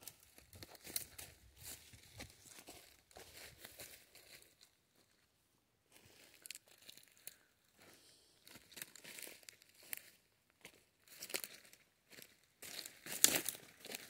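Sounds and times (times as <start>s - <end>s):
footsteps crunching dry leaves: 0.0s - 4.7s, 8.4s - 14.0s.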